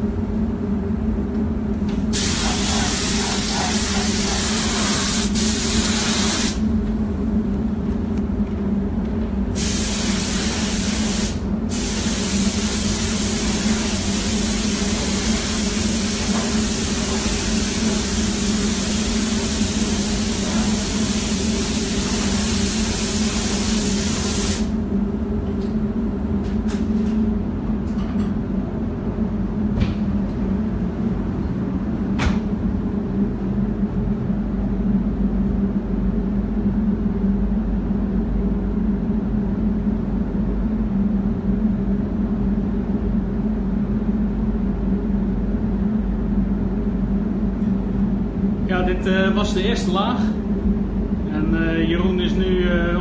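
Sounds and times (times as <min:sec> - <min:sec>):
steady low hum: 0:00.0 - 0:53.0
paint spray gun hissing: 0:02.1 - 0:06.6, 0:09.6 - 0:24.7.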